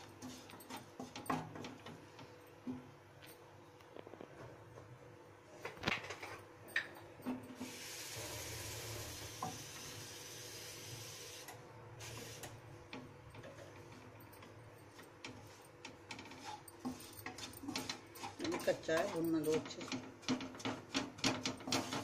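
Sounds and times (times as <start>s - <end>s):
wooden spatula scraping a pan: 0.0s - 1.8s, 15.2s - 22.0s.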